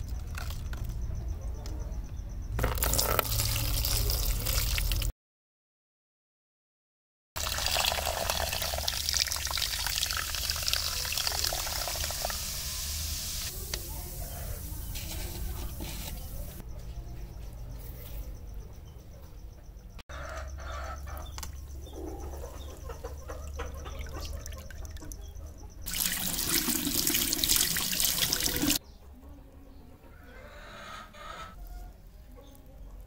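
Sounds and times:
liquid fizzing and bubbling: 2.6s - 5.1s, 7.4s - 13.5s, 25.9s - 28.8s
liquid splashing and dripping: 25.9s - 28.8s.

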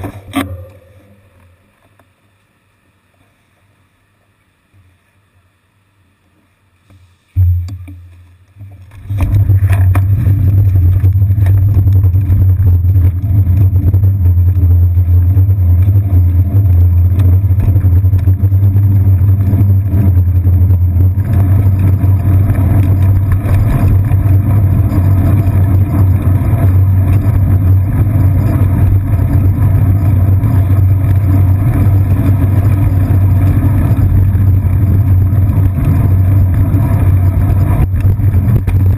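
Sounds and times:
bicycle riding low rumble: 0.0s - 5.4s, 7.2s - 38.9s
thump: 7.4s - 8.0s.

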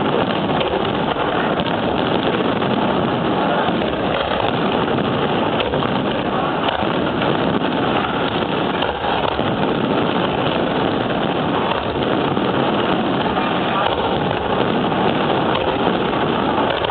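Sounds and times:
fireworks bursts and crackling: 0.0s - 16.9s
sharp firework cracks: 0.0s - 16.9s.

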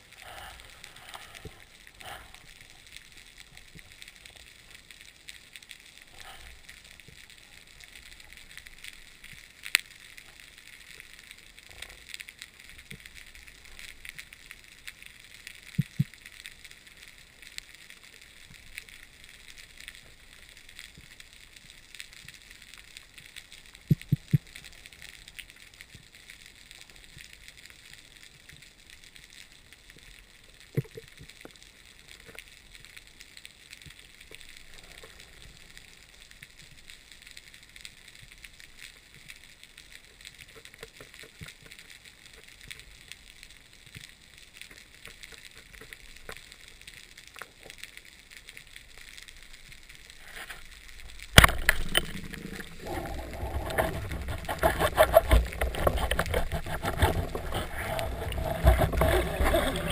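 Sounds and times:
underwater crackle and hiss: 0.0s - 59.9s
underwater clicks: 15.6s - 16.3s, 51.0s - 59.9s.

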